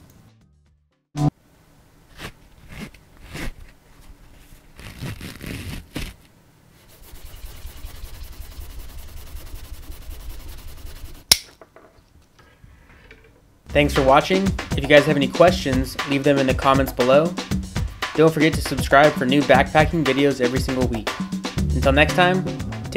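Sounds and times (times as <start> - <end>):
nylon webbing scraping and rustling: 2.1 - 6.3
rapid even rasp: 6.8 - 11.3.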